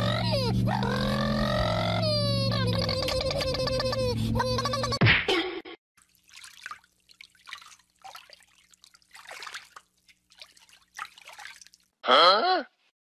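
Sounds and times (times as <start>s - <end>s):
dog splashing through water: 6.0s - 11.9s.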